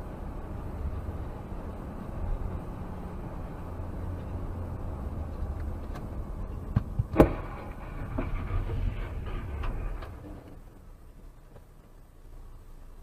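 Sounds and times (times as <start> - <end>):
car road and engine rumble: 0.0 - 13.0
sharp loud thud: 7.0 - 9.2.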